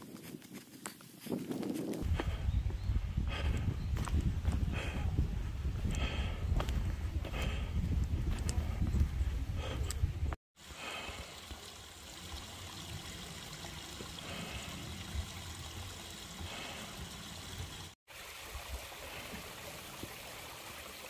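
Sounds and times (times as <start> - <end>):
mountain stream rushing: 10.6 - 21.0.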